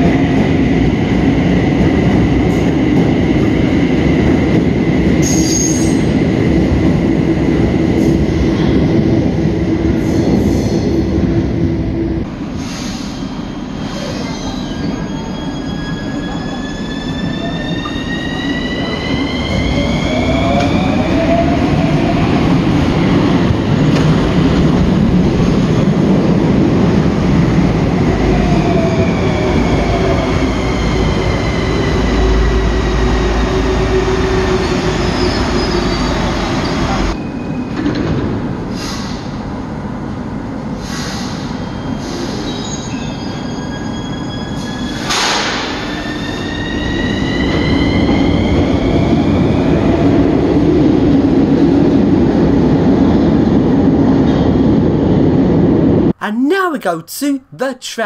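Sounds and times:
train rumbling: 0.0s - 42.6s.

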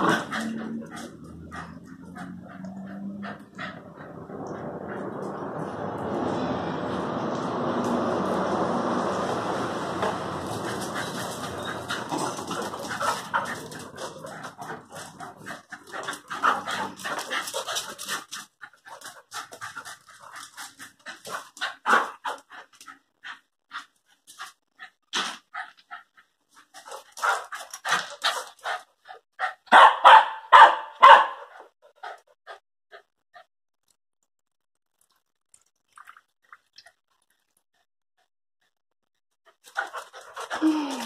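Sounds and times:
dogs yipping and barking: 0.0s - 4.7s, 10.4s - 19.8s, 29.4s - 31.6s
dogs panting: 0.0s - 5.6s, 10.0s - 29.8s, 31.3s - 33.5s, 39.4s - 41.0s
dogs scuffling: 9.1s - 22.9s.

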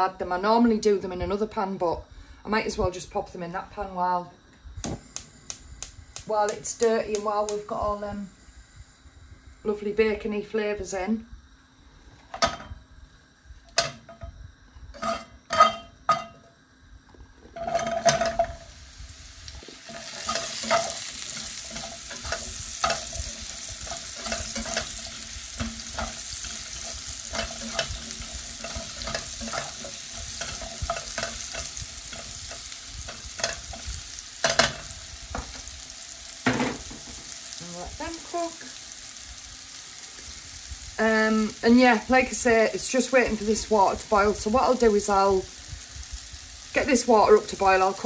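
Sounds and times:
mushrooms sizzling in a frying pan: 4.8s - 48.0s
spatula scraping a pan: 14.9s - 15.9s, 17.5s - 18.8s, 19.6s - 36.1s.

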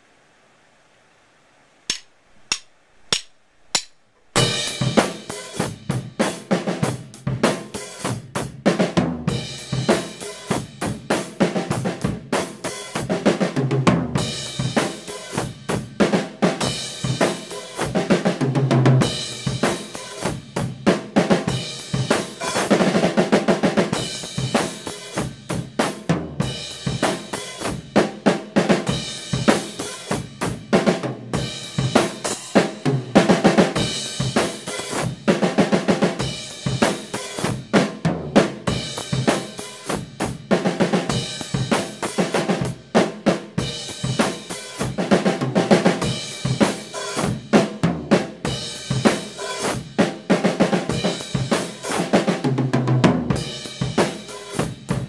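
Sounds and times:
stick clicks: 1.9s - 4.3s
drum kit groove: 1.9s - 55.0s.

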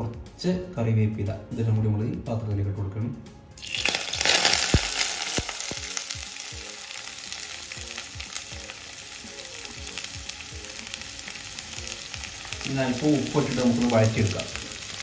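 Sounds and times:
vegetables sizzling in hot oil: 3.6s - 15.0s.

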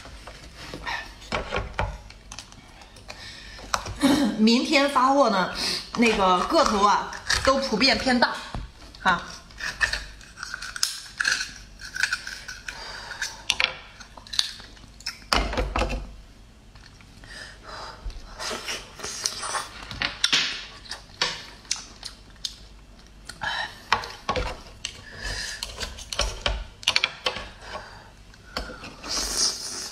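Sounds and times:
knife scraping oyster shells: 6.0s - 8.2s, 9.2s - 14.6s.

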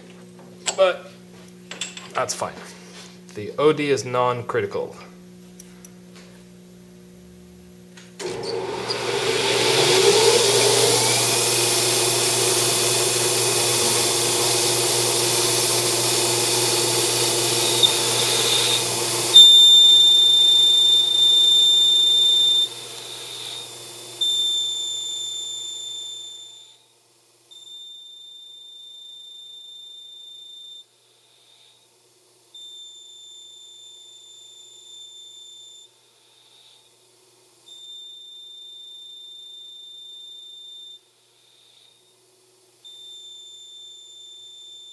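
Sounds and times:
lathe cutting metal: 8.2s - 26.5s
high steady whine: 9.5s - 26.2s.

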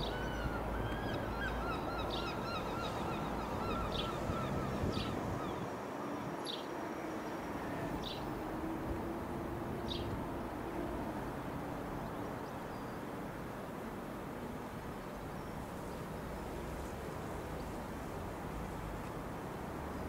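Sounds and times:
birds chirping: 0.0s - 6.7s.

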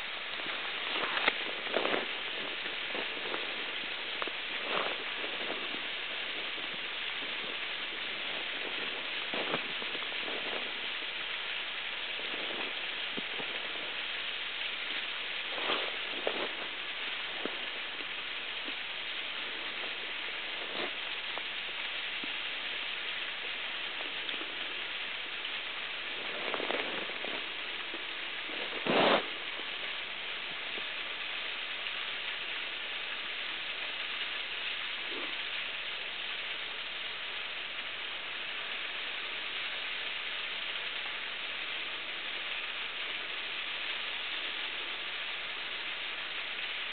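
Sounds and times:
water running beneath ice: 0.0s - 46.9s.

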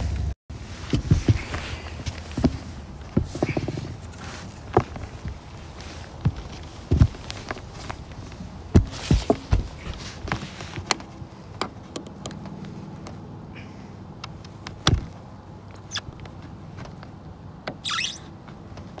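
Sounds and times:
thumps on roof: 8.7s - 10.0s, 14.8s - 15.1s.

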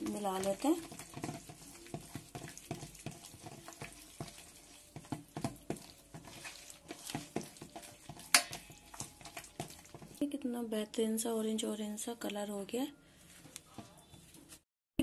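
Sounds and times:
hand squishing wet paste in bowl: 0.0s - 10.3s, 13.2s - 14.6s.

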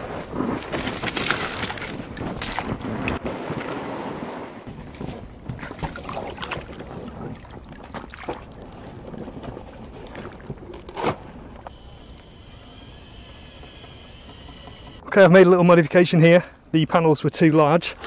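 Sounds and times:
knocks and scrapes on stones: 0.0s - 3.8s
water splashing: 4.8s - 11.6s.

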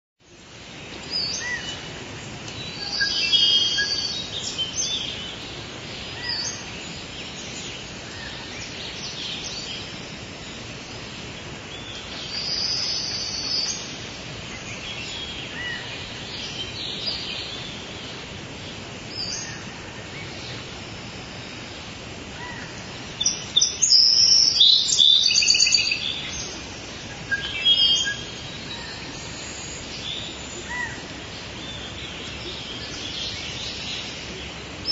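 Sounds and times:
steady background hiss: 0.2s - 34.9s
bird calls and chirps: 0.3s - 21.7s, 22.3s - 34.9s.

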